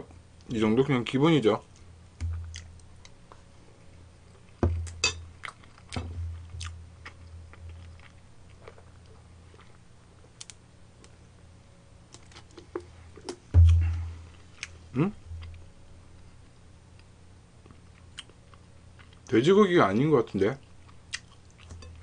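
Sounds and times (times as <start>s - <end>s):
close chewing with mouth clicks: 4.4s - 10.5s, 17.0s - 19.3s, 20.6s - 22.0s.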